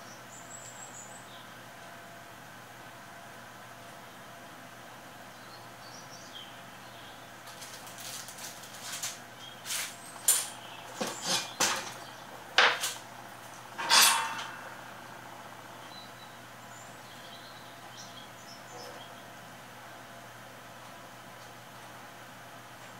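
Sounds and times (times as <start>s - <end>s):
small clicks and rustles: 7.4s - 11.2s.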